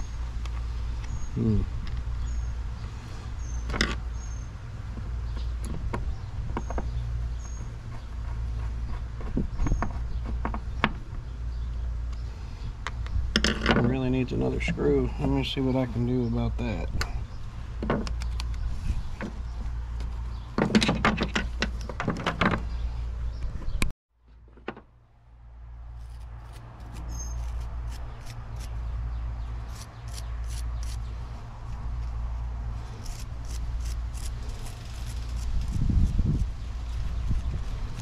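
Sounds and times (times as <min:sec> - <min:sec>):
wire brush scraping screw: 0:32.9 - 0:35.8.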